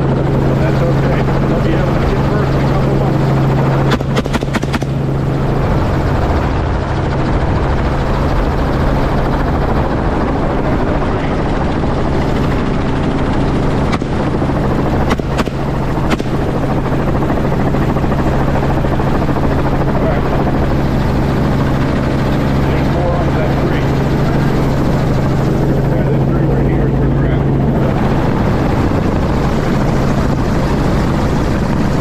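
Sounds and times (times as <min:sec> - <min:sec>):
helicopter engine and rotor drone: 0:00.0 - 0:32.0
rifle shots: 0:03.9 - 0:05.0, 0:13.9 - 0:14.4, 0:15.0 - 0:16.6.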